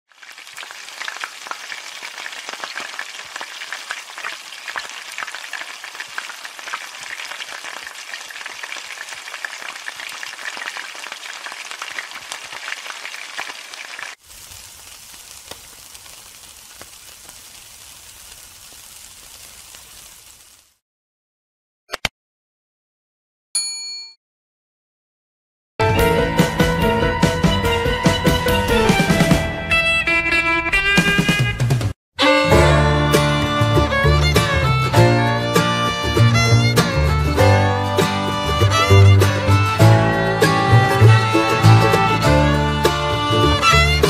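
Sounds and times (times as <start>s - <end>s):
food sizzling in a hot pan: 0.1s - 20.8s
steady hiss: 14.2s - 20.8s.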